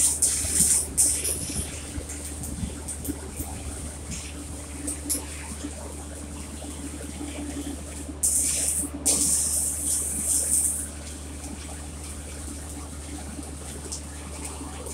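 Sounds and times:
welding arc crackling: 0.0 - 4.3
steady low hum: 0.0 - 14.9.

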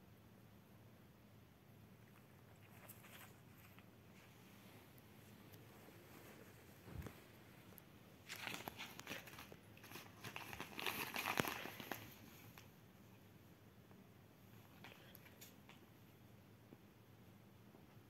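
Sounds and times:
paper envelopes crinkling: 8.2 - 12.7.

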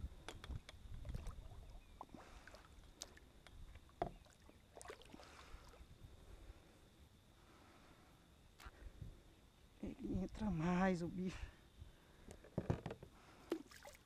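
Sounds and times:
soft wash of water: 1.0 - 5.9, 13.5 - 14.0.

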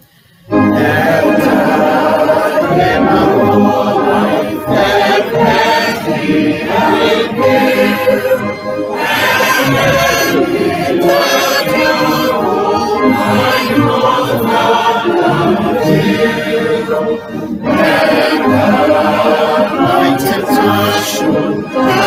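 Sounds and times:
choir singing a hymn: 0.5 - 22.0.

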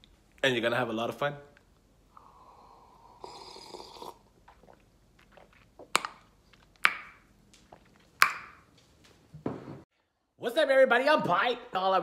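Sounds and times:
person slurping coffee: 2.2 - 6.0.

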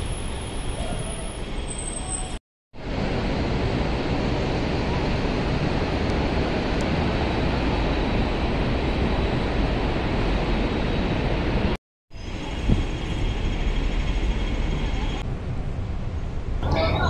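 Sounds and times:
city street traffic: 0.0 - 17.0
wind buffeting microphone: 2.8 - 13.6.

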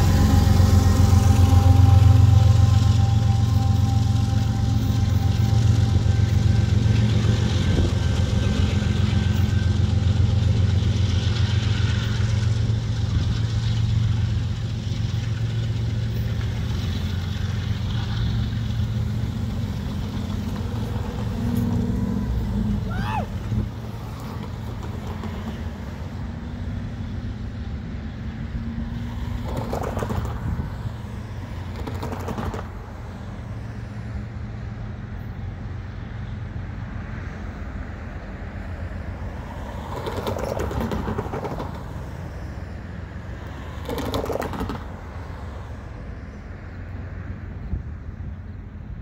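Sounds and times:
steady engine note: 0.0 - 24.6
diesel freight train rumble: 0.0 - 49.0.

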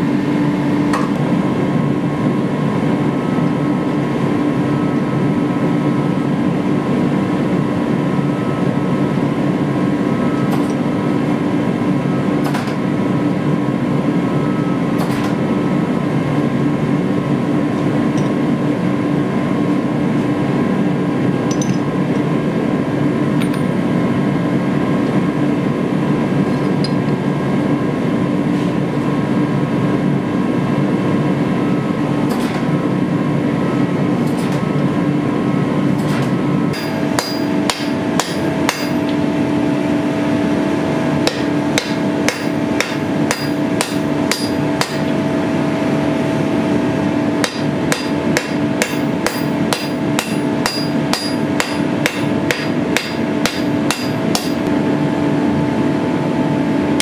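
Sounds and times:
forge humming: 0.0 - 57.0
hammer striking steel on anvil: 21.5 - 21.8, 36.1 - 39.2, 41.2 - 45.2, 47.4 - 54.7.

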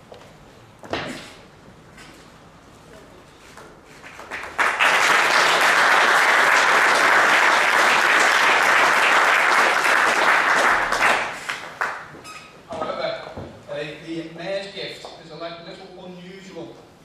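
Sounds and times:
crowd applauding: 4.0 - 12.1.

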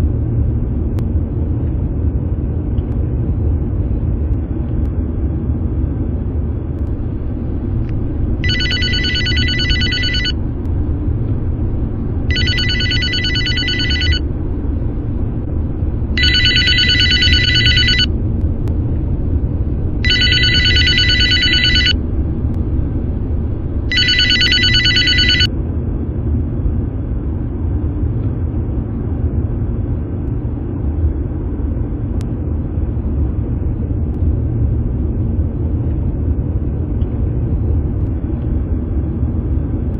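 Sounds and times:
car driving rumble: 6.6 - 24.4
telephone ringing: 8.4 - 10.4, 12.2 - 14.4, 16.1 - 18.1, 20.0 - 22.0, 23.9 - 25.5.

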